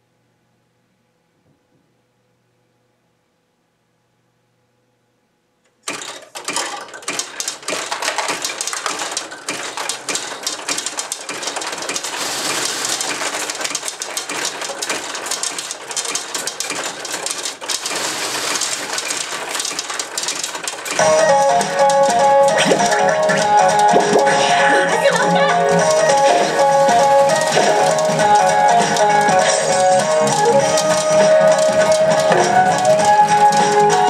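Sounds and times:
steel balls rattling in pachinko machine: 0:05.8 - 0:34.0
pachinko machine music: 0:12.0 - 0:14.6, 0:17.8 - 0:34.0.

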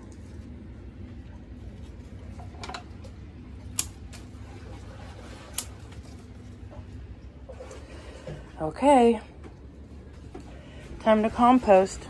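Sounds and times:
pruning snips snipping: 0:03.7 - 0:04.3, 0:05.5 - 0:05.8.

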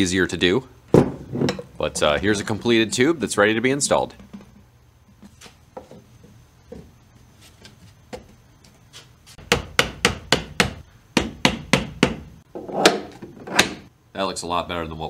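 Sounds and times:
sharp knocks on wood: 0:09.4 - 0:12.3.

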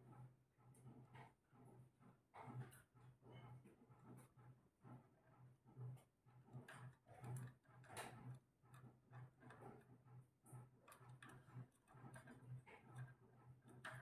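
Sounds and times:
parakeet claws and beak tapping cage: 0:06.6 - 0:09.8, 0:10.8 - 0:14.0.

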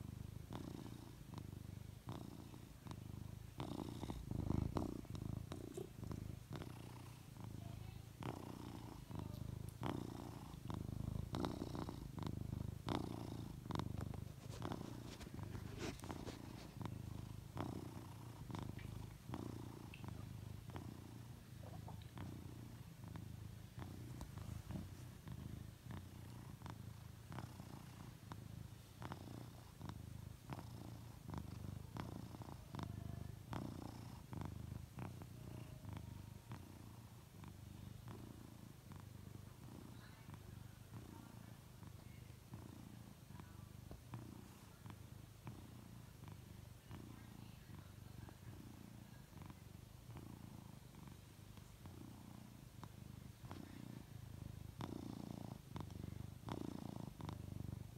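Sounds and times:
cat purring: 0:00.0 - 0:57.9.

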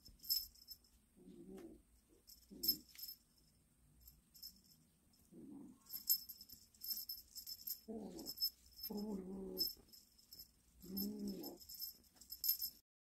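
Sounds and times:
cat toy jingling: 0:00.0 - 0:00.8, 0:02.3 - 0:03.2, 0:05.9 - 0:12.8.

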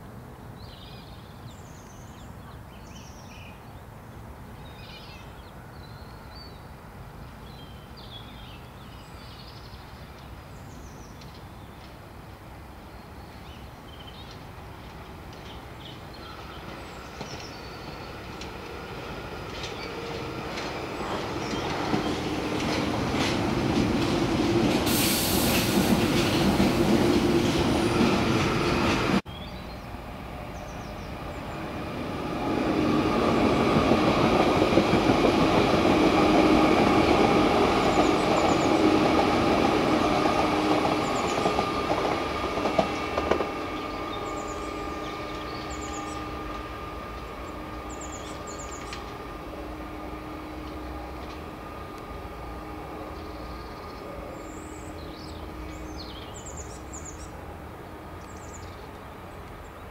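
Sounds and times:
train wheels on rails: 0:13.8 - 0:29.3, 0:30.1 - 0:59.9
train motor hum: 0:30.3 - 0:56.0.

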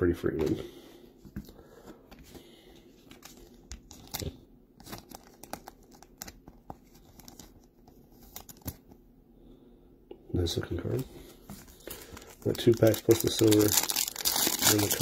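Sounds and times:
trading cards crackling: 0:03.0 - 0:09.0, 0:11.3 - 0:15.0.

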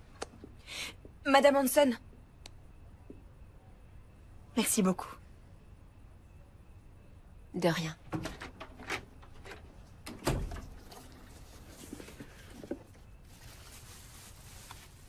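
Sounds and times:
wooden door shutting: 0:08.1 - 0:11.0
tissue paper rustling: 0:11.3 - 0:15.0.

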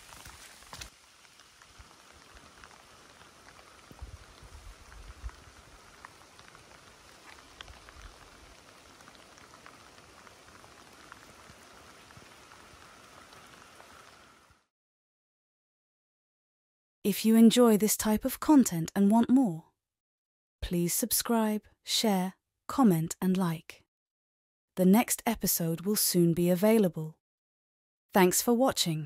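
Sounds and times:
light rain hissing: 0:00.0 - 0:14.7.

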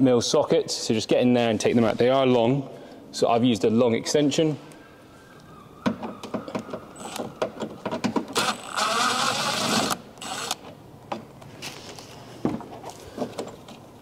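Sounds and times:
power tool motor whirring: 0:08.4 - 0:10.6.

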